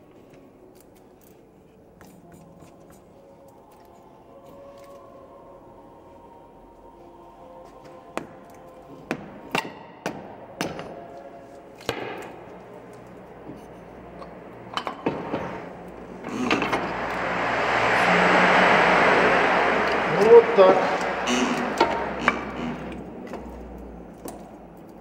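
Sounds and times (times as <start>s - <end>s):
loud rushing noise: 13.2s - 24.1s.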